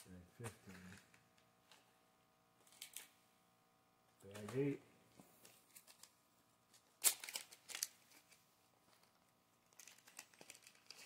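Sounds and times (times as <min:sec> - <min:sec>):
plastic bag crinkling: 0:06.9 - 0:08.4, 0:09.0 - 0:11.0.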